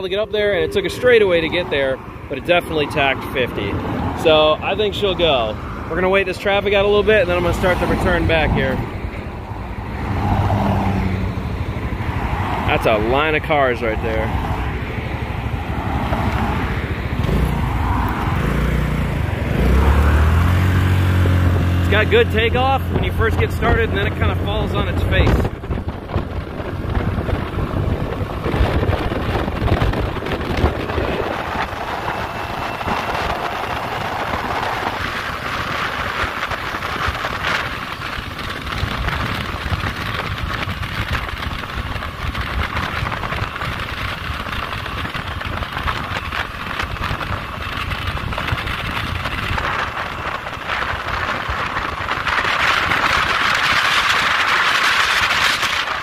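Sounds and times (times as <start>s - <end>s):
wind over microphone: 0.0s - 56.0s
scooter engine running: 25.5s - 56.0s.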